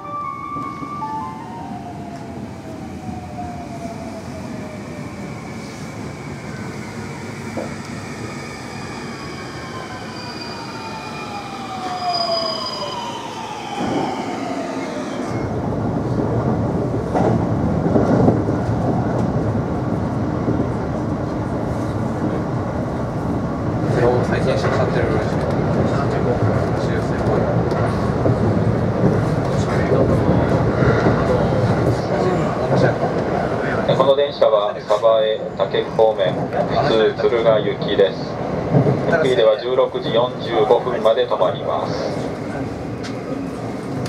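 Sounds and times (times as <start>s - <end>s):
train running noise from inside: 7.0s - 8.0s, 13.6s - 44.0s.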